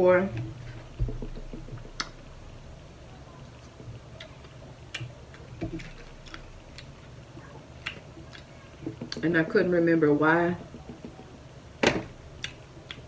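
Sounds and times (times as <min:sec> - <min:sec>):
mouth chewing food: 0:03.3 - 0:09.3.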